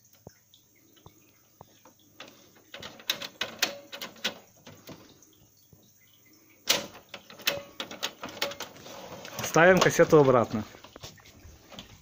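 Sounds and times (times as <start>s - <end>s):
plastic parts clicking into place: 2.2s - 5.0s, 6.7s - 8.8s.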